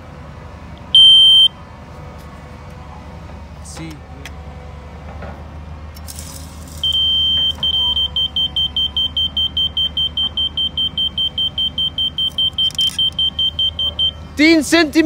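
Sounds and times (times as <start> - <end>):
fast beeps: 1.0 - 1.5, 6.8 - 14.2
high steady tone: 6.8 - 14.3.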